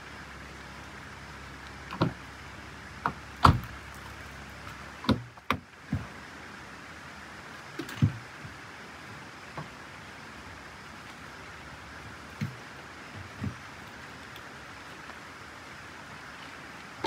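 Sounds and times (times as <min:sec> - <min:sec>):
gear knocking against car: 0:03.0 - 0:03.8, 0:05.0 - 0:06.2, 0:12.3 - 0:13.7.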